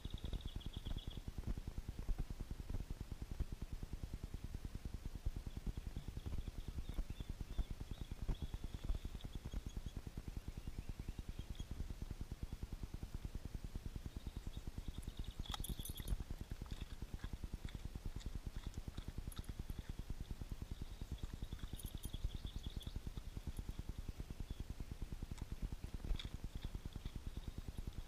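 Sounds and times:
dog crunching crackers: 15.3s - 20.3s, 25.4s - 28.0s.

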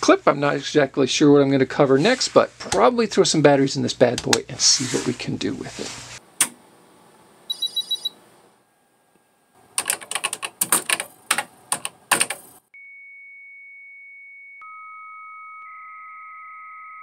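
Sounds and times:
high modem tone: 7.5s - 8.2s, 12.8s - 17.0s
lower modem tone: 7.5s - 8.2s, 12.8s - 17.0s
computer keyboard typing: 9.7s - 12.6s.

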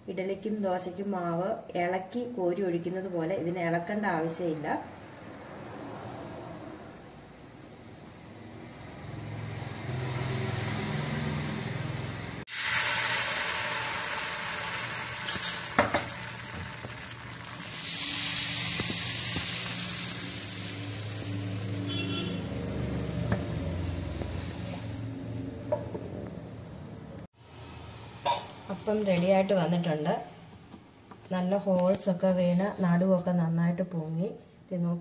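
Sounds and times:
batter sizzling in a hot pan: 12.5s - 25.7s.

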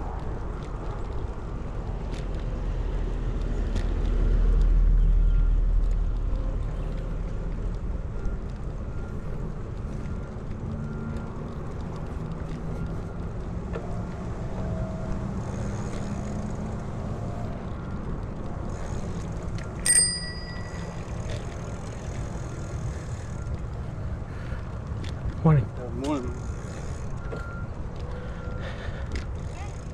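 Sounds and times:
bicycle riding rumble: 0.0s - 29.9s
bicycle bell ringing: 19.8s - 21.6s.

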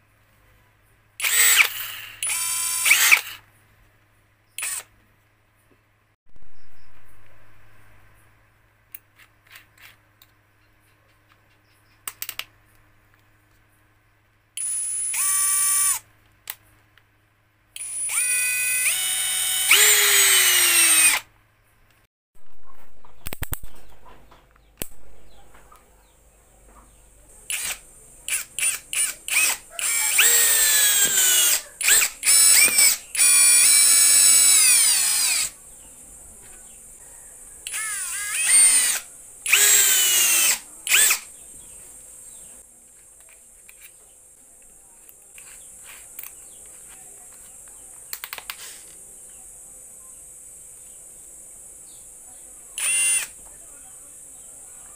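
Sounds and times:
cordless drill motor whining: 1.2s - 3.4s, 4.6s - 4.9s, 14.6s - 16.0s, 17.8s - 21.3s, 27.5s - 35.6s, 37.6s - 41.7s, 52.8s - 53.4s.

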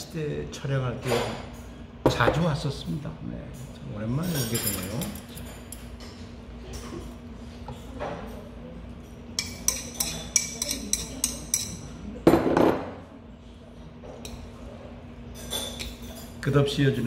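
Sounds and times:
metal chopsticks clinking on bowl: 4.2s - 6.1s, 9.4s - 11.9s.

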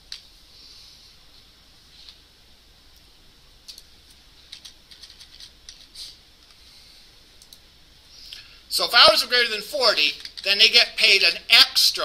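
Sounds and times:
faint keyboard typing: 3.6s - 6.6s, 7.3s - 7.7s, 10.1s - 10.5s.

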